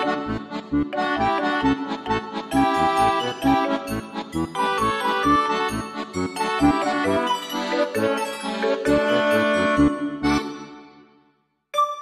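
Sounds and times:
melodic tune over steady beat: 0.2s - 10.4s, 11.8s - 12.0s.

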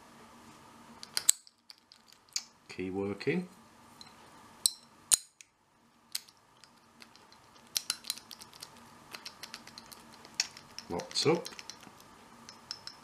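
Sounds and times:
padlock and key clicking: 6.1s - 13.0s.

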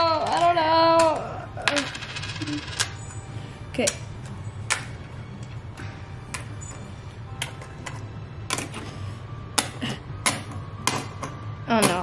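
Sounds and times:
coins clicking on wooden table: 1.6s - 3.2s.

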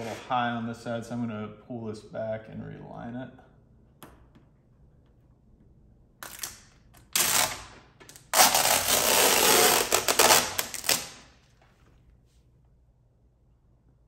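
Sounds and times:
tint film peeling: 6.2s - 11.3s.

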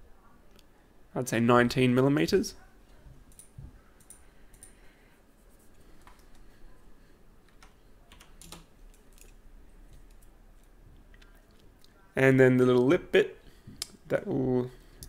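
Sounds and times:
keyboard keystrokes: 7.5s - 9.3s.

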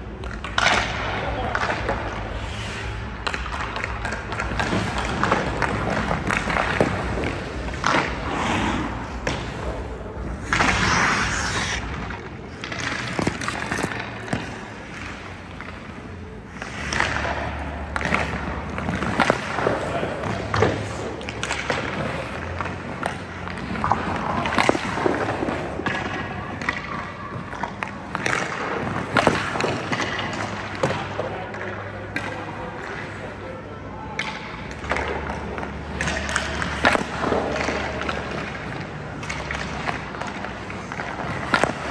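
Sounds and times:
skates scraping on ice: 0.0s - 32.3s, 34.7s - 41.9s
sticks hitting pucks: 0.0s - 41.9s
pucks thudding off goalie pads: 3.1s - 8.3s, 11.8s - 15.8s, 16.6s - 32.3s, 34.2s - 41.9s.

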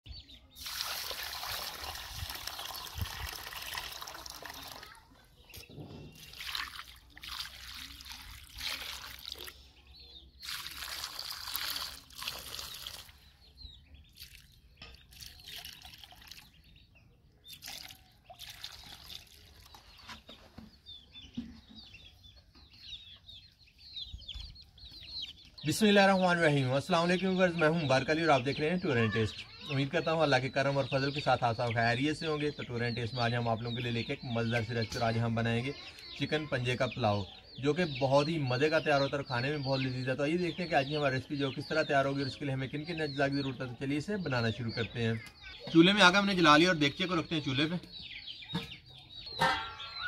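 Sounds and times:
water running and splashing: 0.6s - 4.9s, 6.2s - 9.6s, 10.4s - 13.2s, 17.5s - 19.8s.

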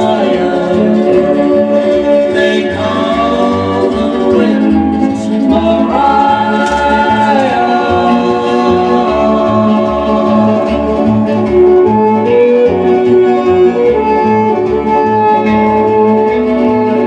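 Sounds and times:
group harmony singing: 0.0s - 12.9s
steady bass line: 0.0s - 17.0s.

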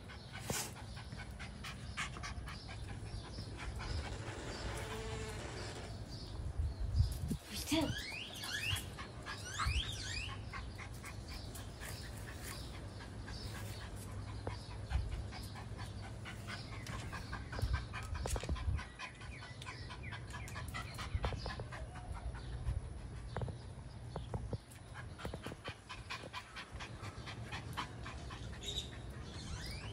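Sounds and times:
dog panting: 0.0s - 5.3s, 8.8s - 23.6s, 24.6s - 29.9s
dog whining: 8.1s - 10.5s.

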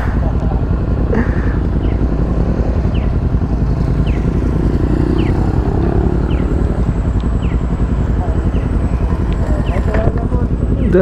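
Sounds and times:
motorcycle engine idling: 0.0s - 11.0s
high falling chirp: 1.7s - 9.0s.

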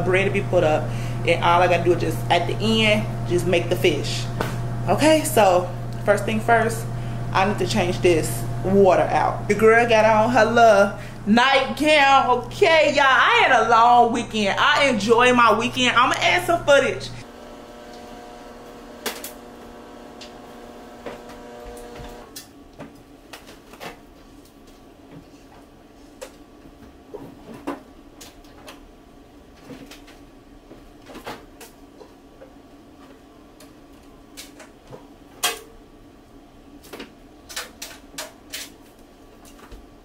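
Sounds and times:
steady hum: 0.0s - 22.4s.

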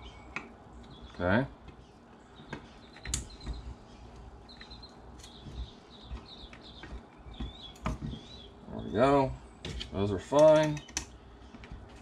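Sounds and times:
bird chirping: 0.0s - 12.0s
hand tools clicking on metal: 9.8s - 11.1s.

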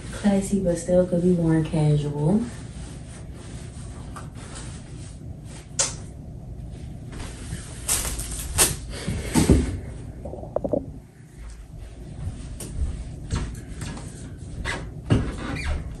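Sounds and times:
clothes and packaging rustling: 6.6s - 14.7s.

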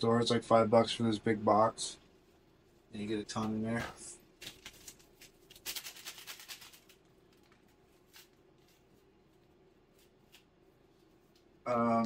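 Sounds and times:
faint steady hum: 0.0s - 12.0s
paper packet rustling: 3.4s - 11.4s.

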